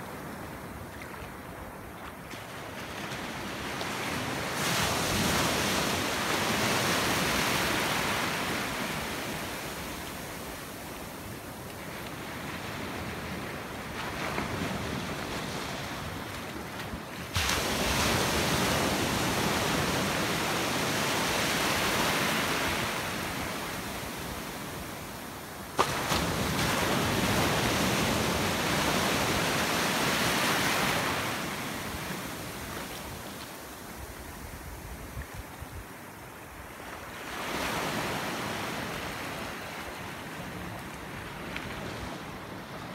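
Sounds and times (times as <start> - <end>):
surf breaking in shallows: 25.7 - 33.5.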